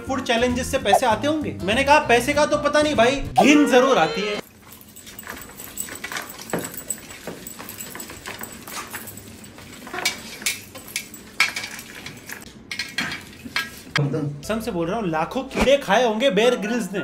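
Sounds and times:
metal clinks: 4.4 - 11.8.

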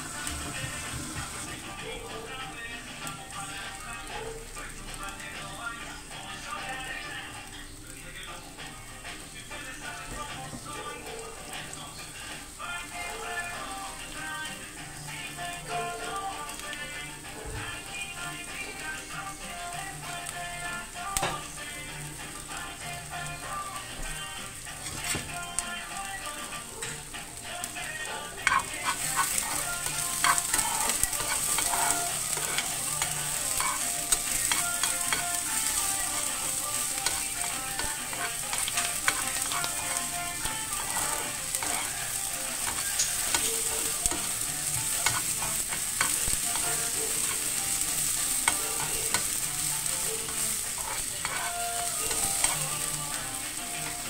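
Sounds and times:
onion sizzling in a frying pan: 0.0 - 54.0
metal spoon scraping a pan: 24.7 - 25.4, 28.1 - 54.0.

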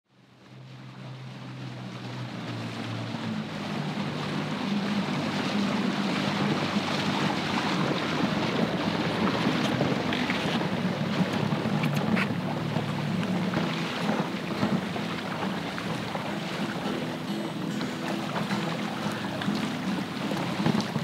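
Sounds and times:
outboard motor droning: 0.1 - 21.0
water rushing past hull: 0.1 - 21.0
wind on microphone: 3.3 - 17.6.

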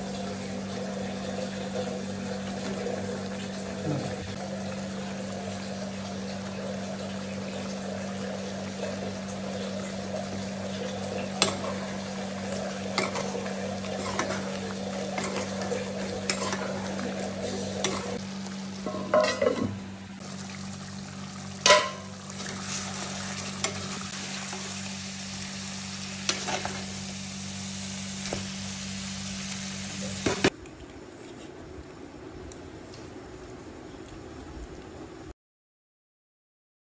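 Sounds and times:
food sizzling in a pan: 0.0 - 30.5
steady low hum: 0.0 - 35.3
steel spoon scraping a pan: 12.9 - 18.2, 18.8 - 19.8.

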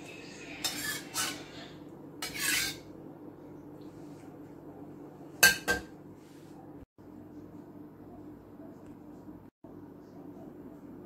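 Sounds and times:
metal spatula scraping wok: 0.0 - 2.9.

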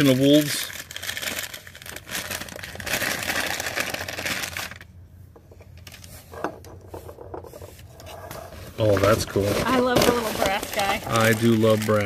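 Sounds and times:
wrapping paper crinkling: 0.0 - 4.9, 8.4 - 12.0.

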